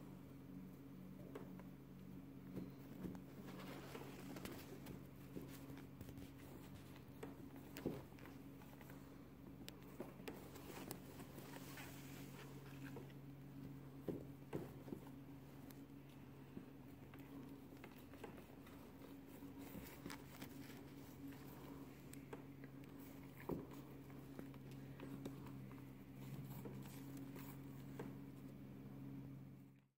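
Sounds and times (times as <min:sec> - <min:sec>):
steady low hum: 0:00.0 - 0:29.9
paws tapping on hardwood floor: 0:02.5 - 0:11.5.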